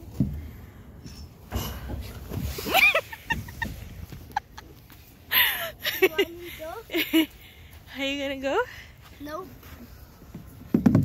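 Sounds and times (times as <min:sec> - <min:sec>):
person laughing: 0:02.6 - 0:07.3.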